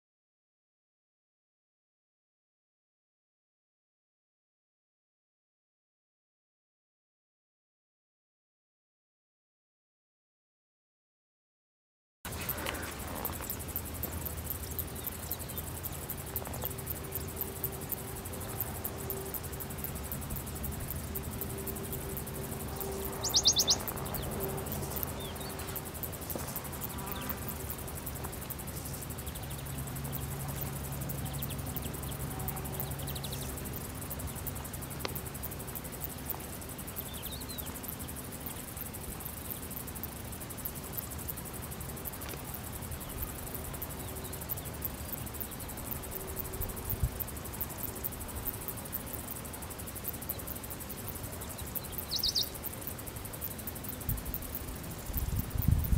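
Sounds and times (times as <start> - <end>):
insects chirring: 12.3 - 55.9
low steady hum: 12.3 - 55.9.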